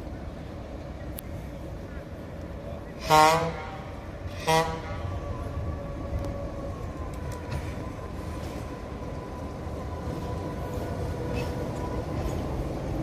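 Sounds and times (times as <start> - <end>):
diesel locomotive engine rumbling: 0.0 - 13.0
steady engine whine: 3.6 - 13.0.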